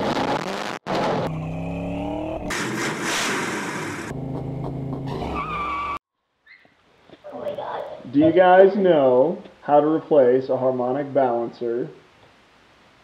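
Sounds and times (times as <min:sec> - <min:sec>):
car engine revving: 0:00.0 - 0:05.9.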